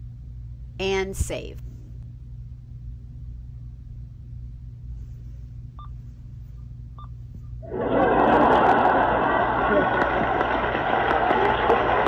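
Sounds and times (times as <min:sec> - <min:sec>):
steady low hum: 0:00.0 - 0:12.0
crowd clapping and cheering effect: 0:07.6 - 0:12.0.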